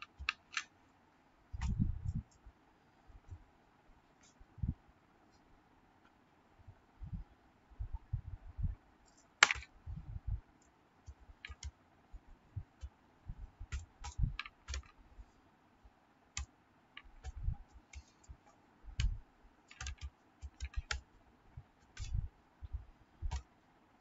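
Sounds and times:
keyboard typing: 0.0s - 0.7s, 11.1s - 11.8s, 13.6s - 15.0s, 16.4s - 21.1s, 21.8s - 23.5s.

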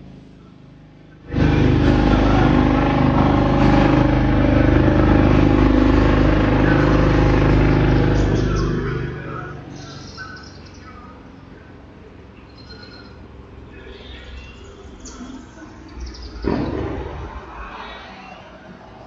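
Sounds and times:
motorcycle engines: 0.0s - 19.0s.

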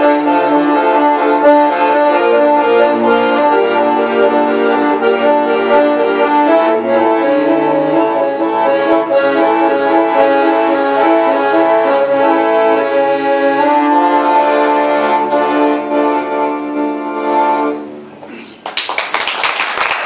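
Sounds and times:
accordion and cello folk song: 0.0s - 18.3s
audience applause: 18.6s - 20.0s.

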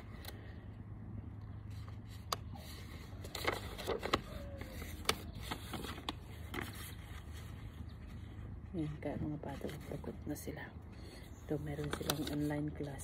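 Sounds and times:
paper rustling and flicking: 1.7s - 8.3s, 11.7s - 12.8s.

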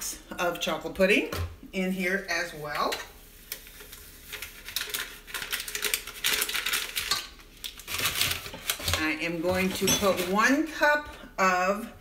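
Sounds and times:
plastic pouch crinkling: 3.5s - 9.1s.

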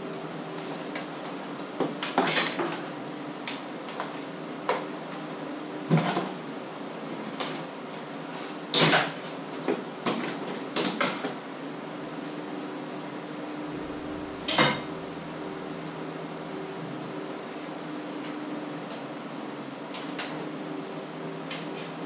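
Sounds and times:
steady low hum: 11.4s - 22.0s
kitchen items knocking and clattering: 13.8s - 15.0s.

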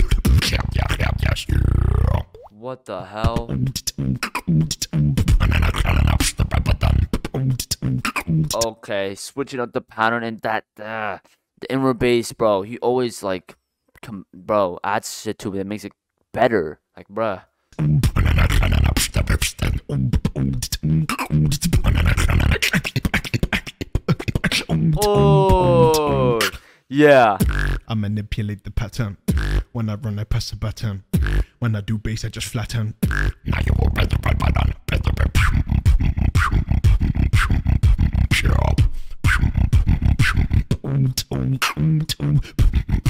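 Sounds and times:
beatboxing into a microphone: 0.0s - 2.5s, 3.2s - 8.8s, 17.7s - 43.0s
deep bass line: 25.1s - 26.4s.

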